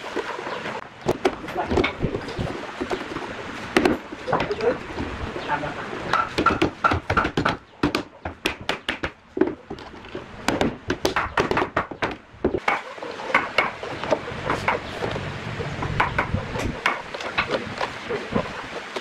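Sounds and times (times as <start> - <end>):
wooden mallet knocking wood: 3.8 - 4.7, 6.1 - 9.6, 10.5 - 13.8.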